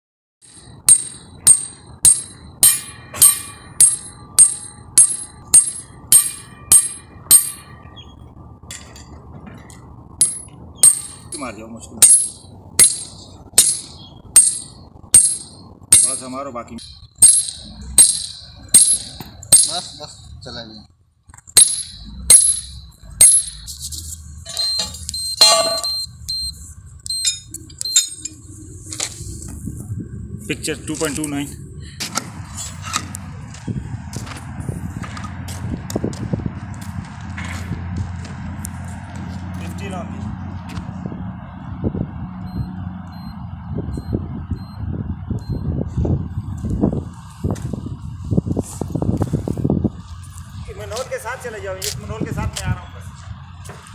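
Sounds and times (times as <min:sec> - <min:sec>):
hammer striking steel pin: 0:00.4 - 0:07.9, 0:10.2 - 0:20.0, 0:21.5 - 0:23.7, 0:24.5 - 0:26.1
short high keypad beeps: 0:24.5 - 0:28.2.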